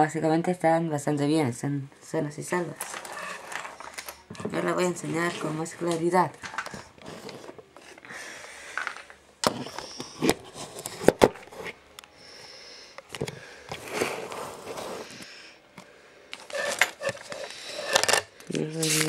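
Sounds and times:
rustling: 0:02.6 - 0:08.0.

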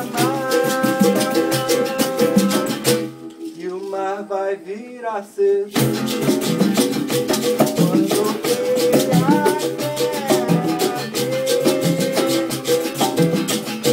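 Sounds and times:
conga drums: 0:00.0 - 0:03.4, 0:05.7 - 0:13.9
shaker rattle: 0:00.0 - 0:04.2, 0:05.7 - 0:13.9
strummed acoustic guitar: 0:00.0 - 0:04.2, 0:05.7 - 0:13.9
person singing: 0:00.0 - 0:06.1, 0:07.6 - 0:13.9.

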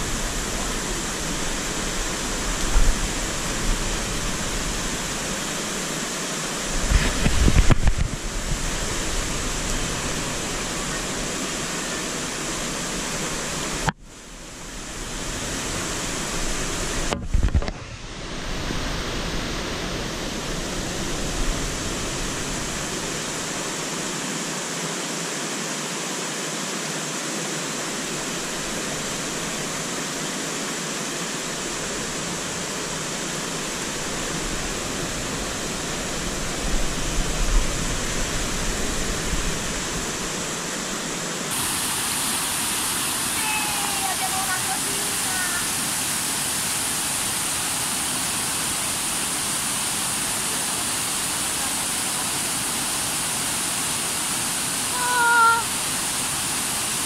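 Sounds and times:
stream cascade rushing: 0:00.0 - 0:57.0.

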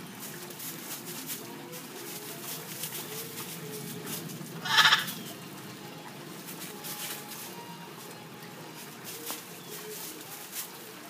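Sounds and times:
parrot squawking: 0:04.6 - 0:05.5.

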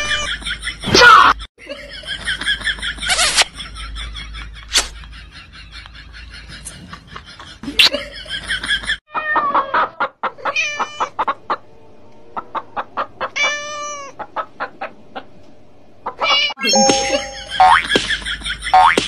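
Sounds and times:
hen clucking: 0:09.1 - 0:11.7, 0:12.3 - 0:15.4, 0:16.0 - 0:16.6.

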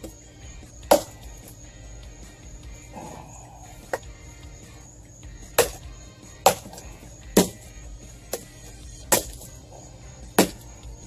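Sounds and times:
hatchet chopping branch: 0:00.9 - 0:01.2, 0:05.6 - 0:05.8, 0:06.4 - 0:06.8, 0:07.4 - 0:07.6, 0:09.1 - 0:09.5, 0:10.4 - 0:10.6.

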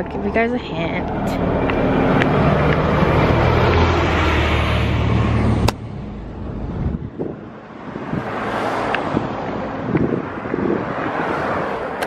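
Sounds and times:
road traffic: 0:00.0 - 0:12.0
wind on microphone: 0:06.4 - 0:12.0.

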